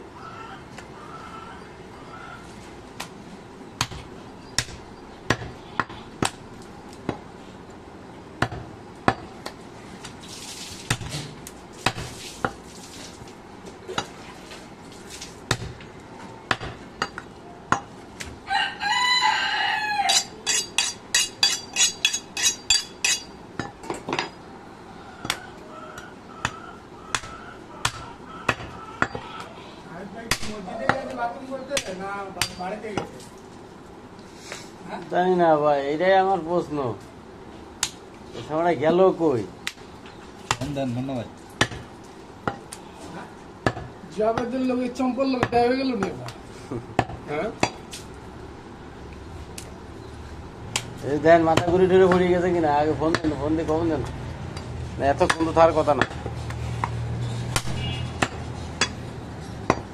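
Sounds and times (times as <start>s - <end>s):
rooster crowing: 0.1s - 2.5s, 18.4s - 20.4s, 24.8s - 29.8s
cleaver chopping on wooden block: 8.4s - 9.3s.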